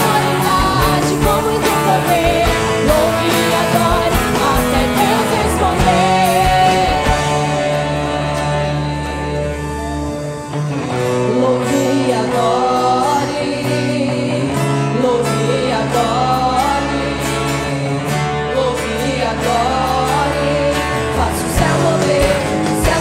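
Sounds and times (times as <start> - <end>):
girls' choir singing a hymn: 0.0 - 9.4
rock band playing: 0.0 - 23.0.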